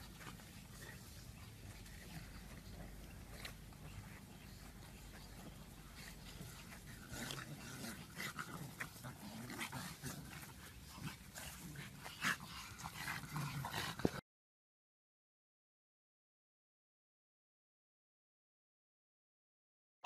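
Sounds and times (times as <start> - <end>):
dogs grunting: 0.0 - 14.2.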